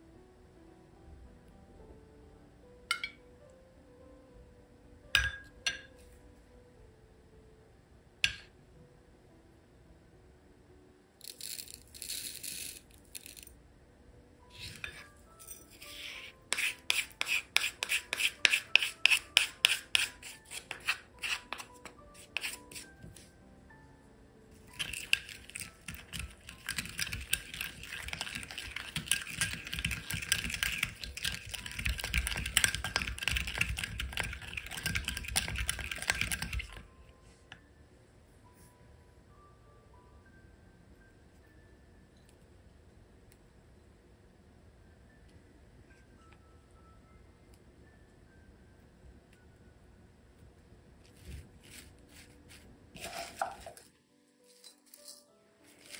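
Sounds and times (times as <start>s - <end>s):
soft background music: 0.0s - 55.9s
stirring thick sauce: 24.8s - 36.8s.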